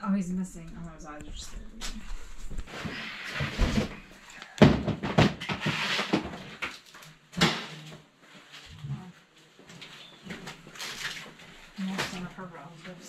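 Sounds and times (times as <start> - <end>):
rustling of household items: 1.3 - 13.0
plastic bins knocking: 3.4 - 6.8.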